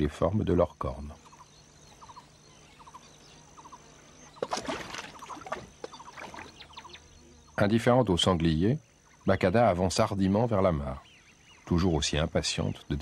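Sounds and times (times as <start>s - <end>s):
water sloshing and splashing: 4.3s - 6.9s.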